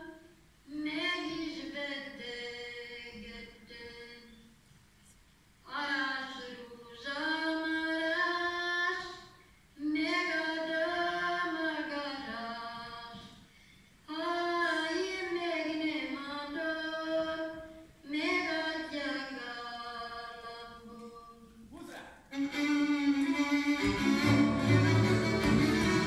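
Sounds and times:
women singing unaccompanied: 0:00.0 - 0:04.5, 0:05.7 - 0:13.4, 0:14.1 - 0:21.7.

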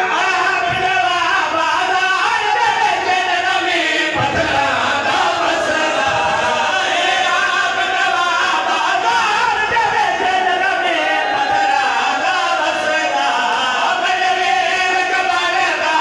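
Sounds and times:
men chanting through microphones: 0:00.0 - 0:16.0.

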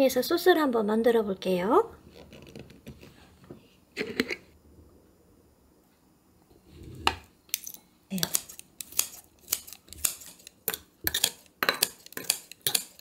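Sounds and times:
scissors snipping: 0:07.5 - 0:13.0.

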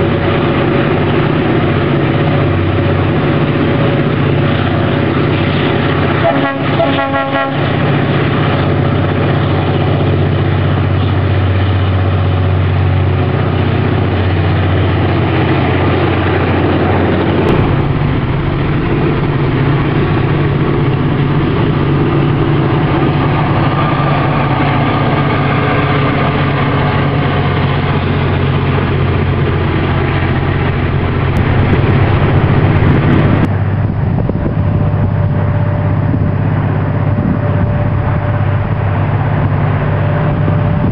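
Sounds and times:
diesel locomotives passing: 0:00.0 - 0:40.9
car road and engine rumble: 0:15.7 - 0:40.9.

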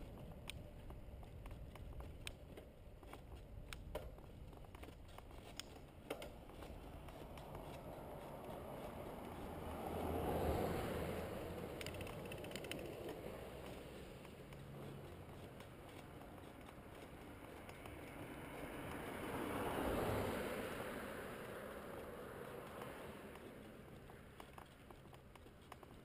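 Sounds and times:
bicycle rattles and ticks: 0:00.0 - 0:26.0
bicycle riding rumble: 0:00.0 - 0:26.0
car passing: 0:06.0 - 0:25.9.

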